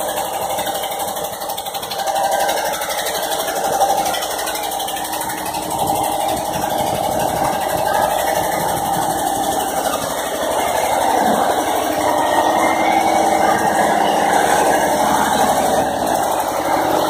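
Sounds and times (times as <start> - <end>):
boat engine running: 0.0 - 17.0.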